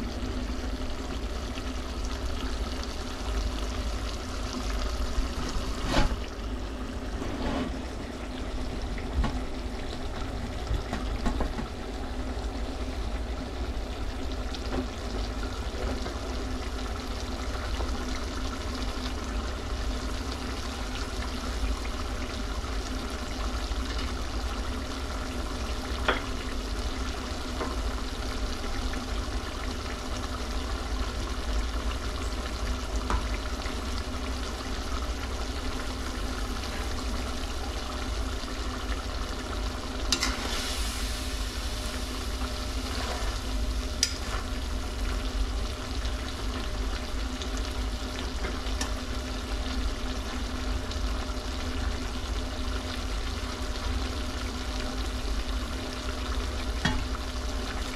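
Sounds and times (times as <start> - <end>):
liver sizzling in a pan: 11.8 - 57.9.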